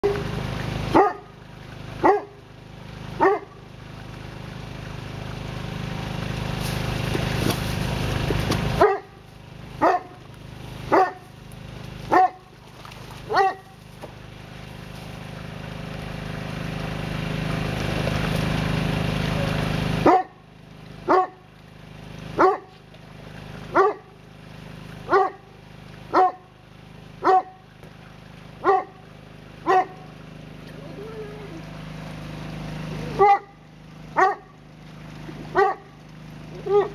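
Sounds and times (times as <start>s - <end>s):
dog barking excitedly: 0.9s - 1.3s, 2.0s - 2.4s, 3.2s - 3.6s, 8.8s - 9.2s, 9.8s - 10.2s, 10.9s - 11.3s, 12.1s - 12.5s, 13.3s - 13.8s, 20.0s - 20.4s, 21.1s - 21.4s, 22.4s - 22.7s, 23.7s - 24.1s, 25.1s - 25.5s, 26.1s - 26.5s, 27.2s - 27.6s, 28.6s - 29.0s, 29.6s - 30.0s, 33.2s - 33.6s, 34.2s - 34.6s, 35.5s - 35.9s, 36.6s - 36.9s.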